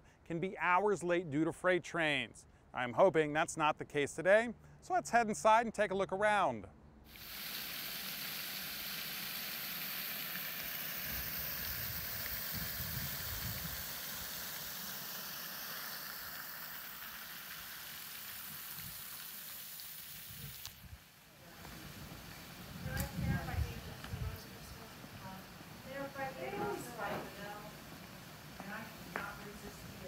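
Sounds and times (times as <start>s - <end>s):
fountain water splashing: 7.1s - 30.0s.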